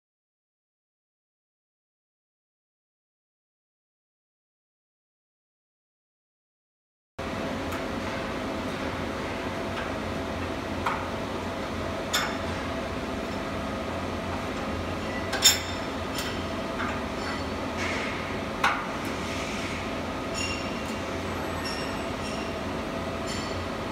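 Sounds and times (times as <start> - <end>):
workshop machinery hum: 7.2 - 23.9.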